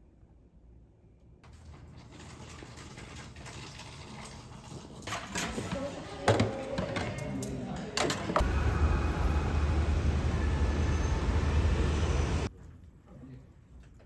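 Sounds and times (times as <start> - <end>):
low rumble of street traffic: 8.4 - 12.5.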